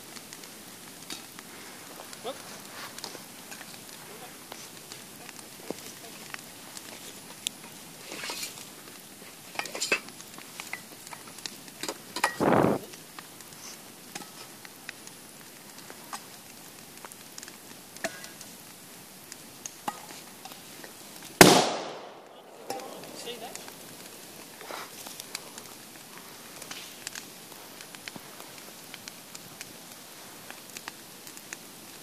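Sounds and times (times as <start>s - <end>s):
bonfire crackling and popping: 0.0s - 32.0s
aerosol can bursting with a bang: 12.2s - 12.9s, 21.4s - 22.3s.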